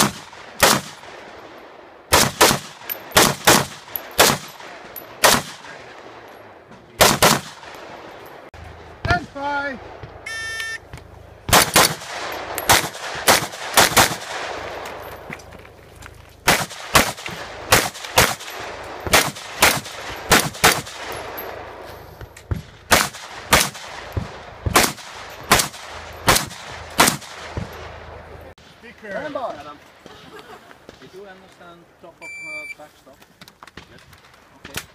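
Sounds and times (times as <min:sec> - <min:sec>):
rifle shots: 0:00.0 - 0:06.3, 0:06.9 - 0:08.5, 0:11.5 - 0:15.0, 0:16.4 - 0:21.8, 0:22.5 - 0:28.2.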